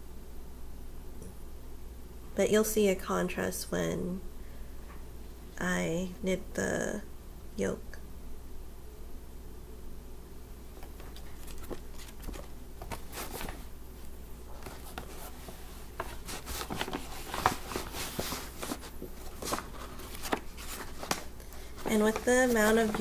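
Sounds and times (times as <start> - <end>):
bag rustling: 10.8 - 13.8, 14.5 - 23.0.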